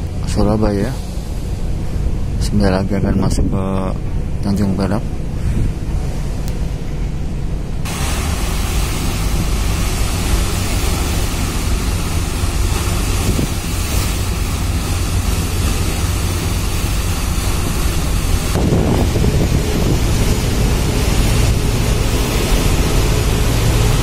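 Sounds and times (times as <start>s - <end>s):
ship engines droning: 0.0s - 24.0s
water churning: 7.6s - 24.0s
wind buffeting microphone: 7.9s - 24.0s.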